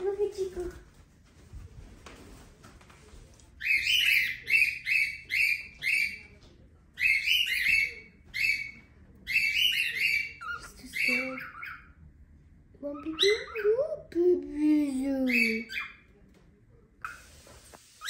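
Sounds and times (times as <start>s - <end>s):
cockatiel chirping: 3.6s - 6.3s, 7.0s - 12.0s, 15.2s - 16.1s.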